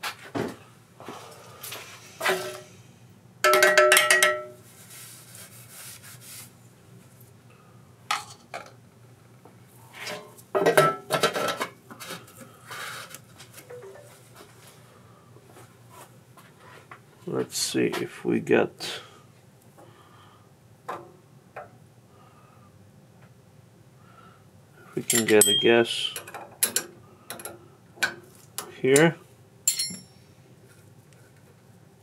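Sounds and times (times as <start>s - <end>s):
ringing metallic clatter: 25.0s - 26.2s, 29.7s - 30.2s
metal parts clinking and rattling: 25.0s - 27.5s, 29.7s - 30.2s.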